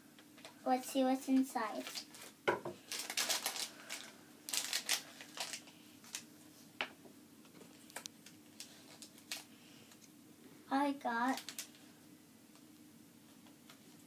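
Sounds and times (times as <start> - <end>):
plastic bag crinkling: 1.7 - 6.3, 7.7 - 10.0, 11.2 - 11.9.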